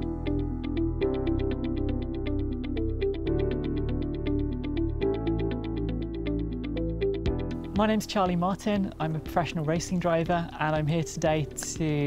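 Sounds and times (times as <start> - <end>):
electronic music: 0.0 - 12.0.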